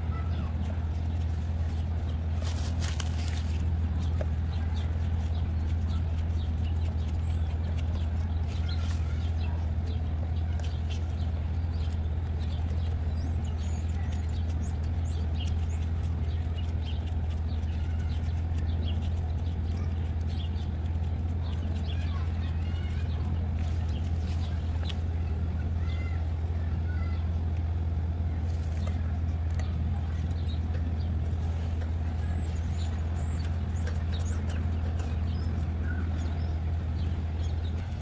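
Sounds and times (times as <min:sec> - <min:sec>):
low machine hum: 0:00.0 - 0:38.0
high chirps and ticks: 0:03.0 - 0:26.1, 0:28.7 - 0:38.0.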